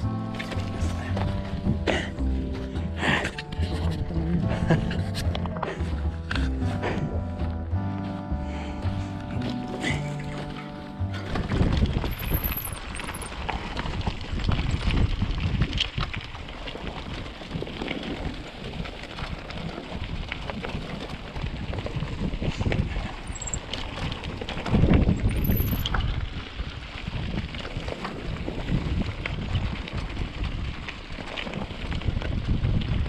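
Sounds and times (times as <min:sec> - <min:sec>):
bike tyres on dirt and stones: 0:00.0 - 0:33.0
wind on microphone: 0:11.2 - 0:33.0
bike clicks and rattles: 0:11.3 - 0:33.0.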